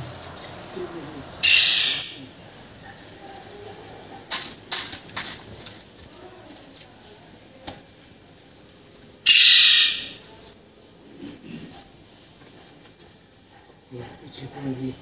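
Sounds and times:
bird call: 1.4s - 2.3s, 9.3s - 10.2s.

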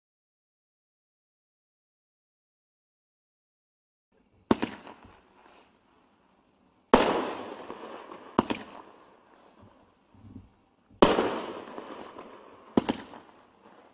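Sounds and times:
crackle of bursting stars: 4.4s - 13.9s
fireworks bangs: 4.5s - 5.6s, 6.9s - 9.9s, 11.0s - 13.9s.

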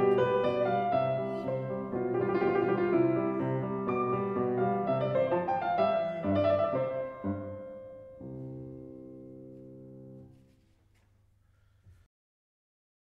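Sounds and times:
piano music: 0.0s - 10.4s.

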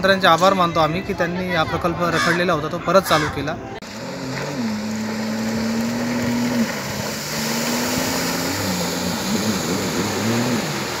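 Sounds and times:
jet ski engine running: 3.8s - 11.0s.

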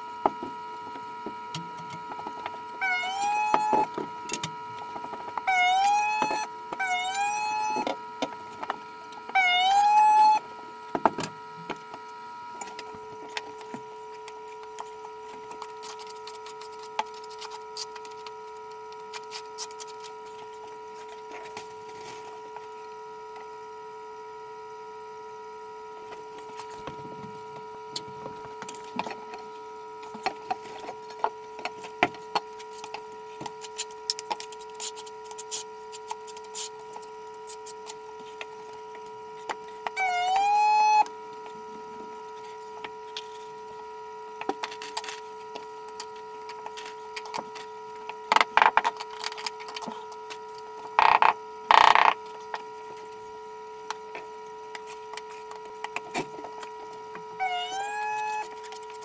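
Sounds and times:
steady hum: 0.0s - 59.0s
loud high tone: 2.8s - 3.9s, 5.4s - 7.9s, 9.3s - 10.4s, 40.0s - 41.1s, 57.4s - 58.5s.

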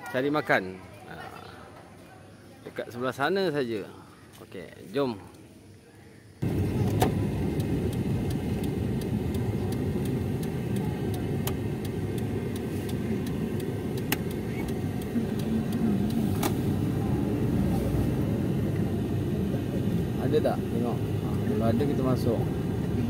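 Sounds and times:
car cabin road and engine rumble: 6.4s - 23.0s.

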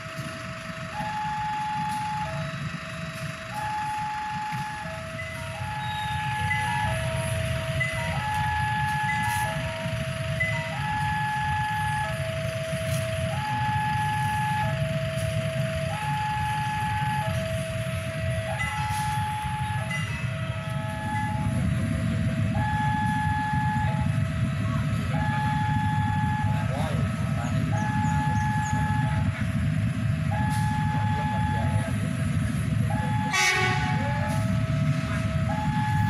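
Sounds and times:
two-tone electronic alarm: 0.0s - 2.7s, 3.3s - 24.5s, 25.1s - 29.4s, 30.2s - 32.0s, 32.7s - 36.0s
low engine rumble: 0.0s - 36.0s.

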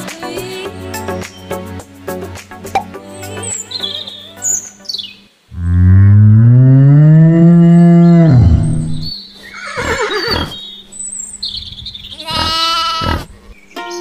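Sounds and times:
cow mooing: 5.5s - 10.6s, 12.1s - 13.4s
horse whinnying: 8.1s - 10.6s, 12.1s - 13.4s
sheep bleating: 12.1s - 13.4s.

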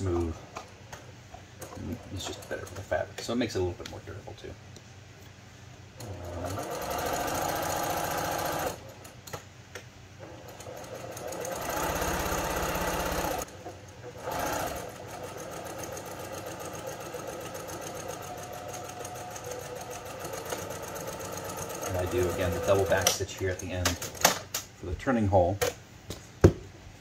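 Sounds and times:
sewing machine stitching cloth: 6.0s - 9.2s, 10.2s - 23.2s.

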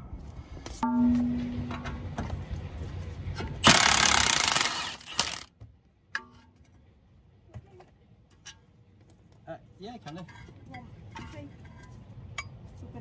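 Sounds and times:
impact wrench hammering: 3.6s - 5.5s.

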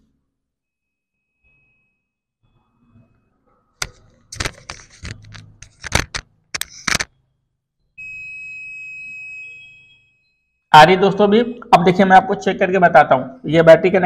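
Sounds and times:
sharp clicks and knocks: 3.8s - 7.1s
multimeter continuity beep: 7.8s - 12.0s.

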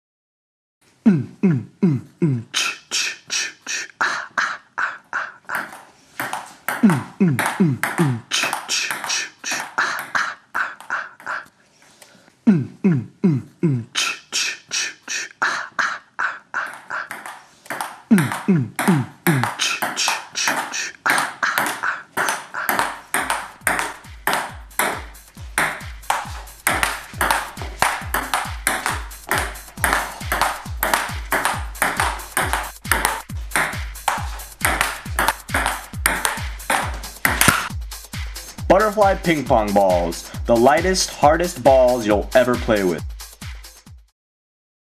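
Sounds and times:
low kick drum pulse: 32.7s - 38.8s.

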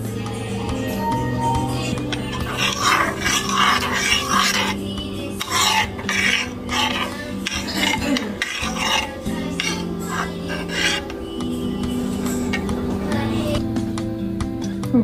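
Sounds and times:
metal spoon scraping ceramic bowl: 0.6s - 13.6s.

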